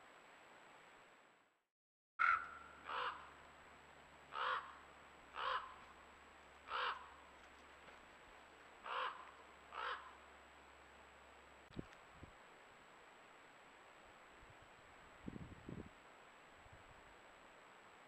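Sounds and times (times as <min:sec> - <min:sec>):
crow cawing: 0:02.2 - 0:03.3, 0:04.3 - 0:04.8, 0:05.4 - 0:05.8, 0:06.7 - 0:07.1, 0:08.8 - 0:10.2.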